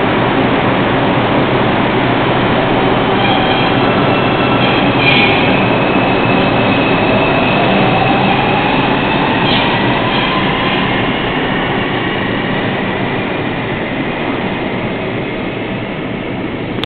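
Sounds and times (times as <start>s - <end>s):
subway train rumbling on track: 0.0s - 16.9s
high wheel squeal: 2.5s - 12.6s.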